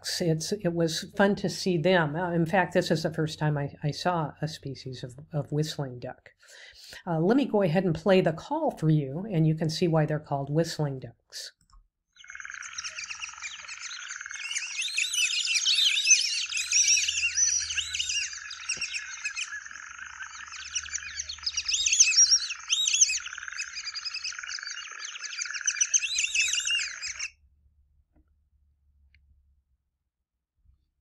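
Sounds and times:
whistling ducks calling: 0:12.2 - 0:27.3.

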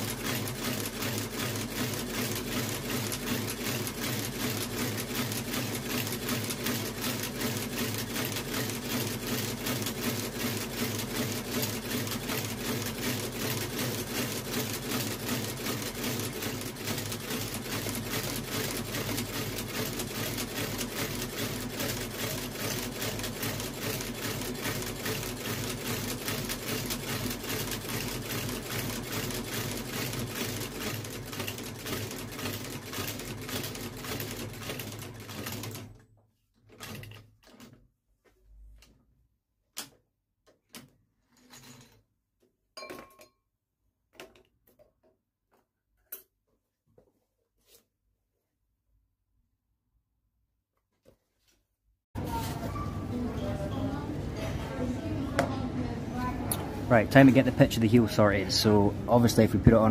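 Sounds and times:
stitching machine needle rhythm: 0:00.0 - 0:36.0.

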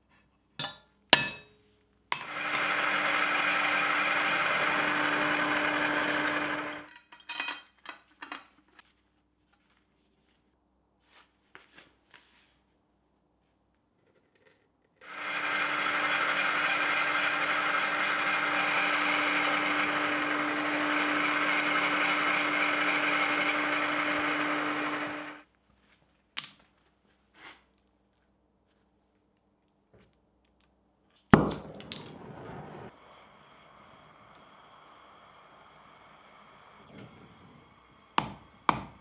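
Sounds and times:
drill press humming: 0:02.2 - 0:06.9, 0:15.0 - 0:25.4, 0:32.9 - 0:39.0
gas torch hissing: 0:32.2 - 0:39.0.

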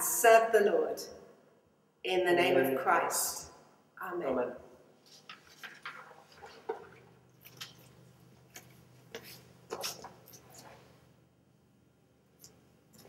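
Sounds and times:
clothing rustle: 0:05.0 - 0:11.0
footsteps: 0:08.5 - 0:10.9.

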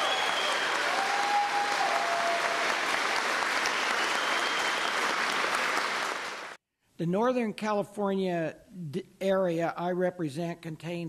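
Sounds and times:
crowd applauding: 0:00.0 - 0:06.6
crowd cheering: 0:00.0 - 0:06.6.

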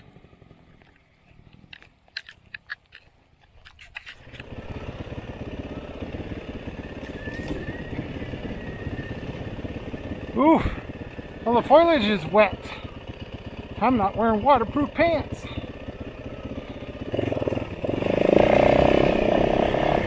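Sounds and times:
dirt bike engine revving: 0:04.2 - 0:20.0.

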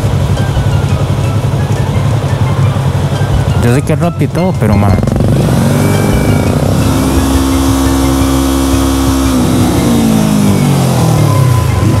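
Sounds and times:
vehicle engine at high revs: 0:04.9 - 0:12.0.

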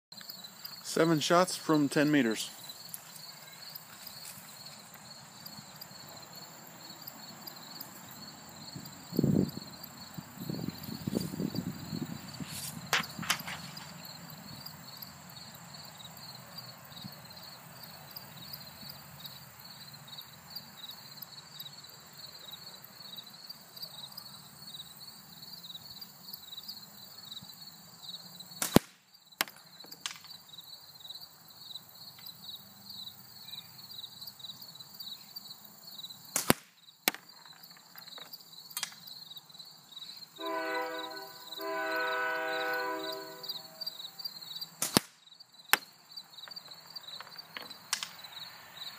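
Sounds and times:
insect chirping: 0:00.1 - 0:48.9
slingshot shots hitting target: 0:28.6 - 0:30.2, 0:36.3 - 0:37.2, 0:44.8 - 0:45.9
held chord of steady tones: 0:40.4 - 0:44.2.

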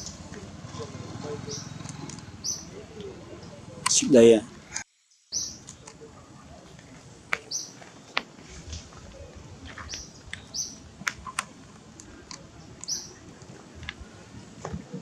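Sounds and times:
birds chirping: 0:00.0 - 0:15.0
low outdoor background: 0:00.0 - 0:15.0.

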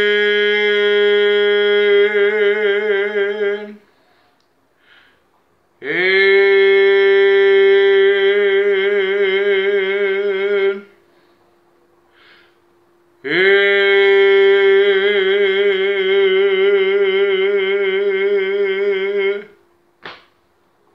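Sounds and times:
singer breathing: 0:03.8 - 0:05.3, 0:11.0 - 0:12.7.

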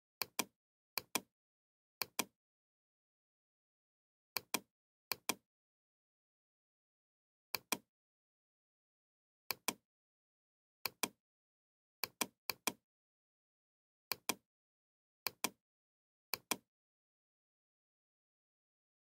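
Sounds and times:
computer mouse button clicking: 0:04.4 - 0:05.4.

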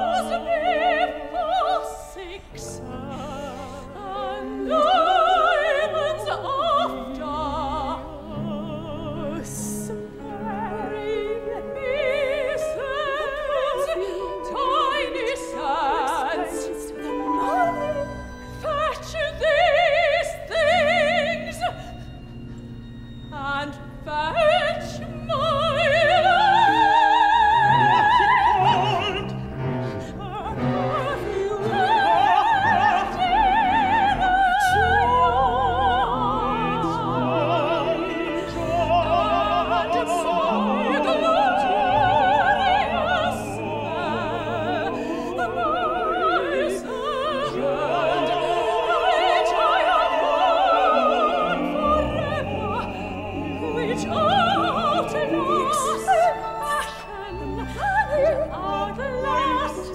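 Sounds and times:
woman singing opera: 0:00.0 - 0:22.4, 0:23.2 - 0:59.9
chamber ensemble playing: 0:00.0 - 0:59.9.

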